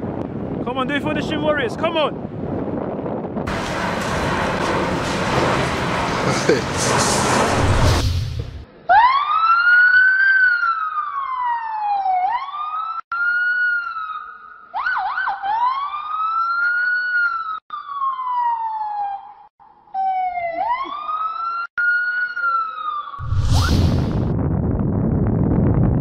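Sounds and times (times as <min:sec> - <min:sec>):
boy imitating police siren: 0:20.0 - 0:23.2.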